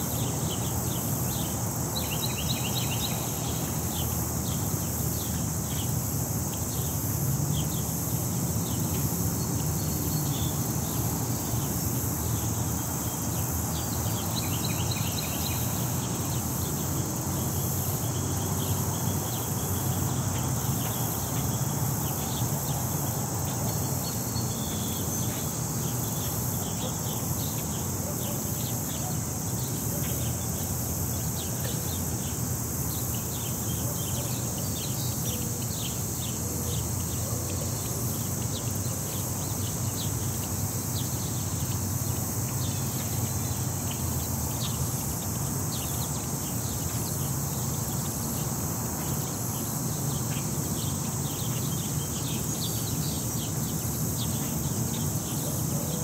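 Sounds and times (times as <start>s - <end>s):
insects chorus: 0.0s - 56.0s.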